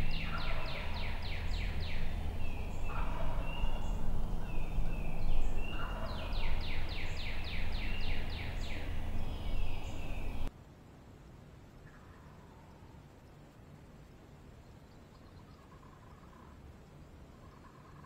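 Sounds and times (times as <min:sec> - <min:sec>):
turkey gobbling: 0:00.0 - 0:08.9
songbirds singing: 0:00.0 - 0:10.5, 0:14.4 - 0:18.0
steady low rumble: 0:00.0 - 0:10.5.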